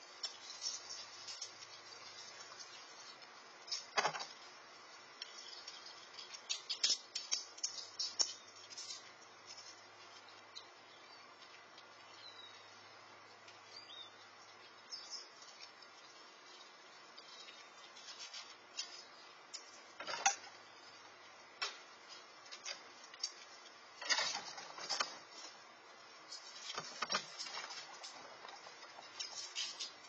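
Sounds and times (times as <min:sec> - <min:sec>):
steady hiss: 0:00.0 - 0:30.0
faint bird chirps: 0:12.0 - 0:18.1
short crackles and scrapes: 0:15.4 - 0:20.5, 0:26.2 - 0:30.0.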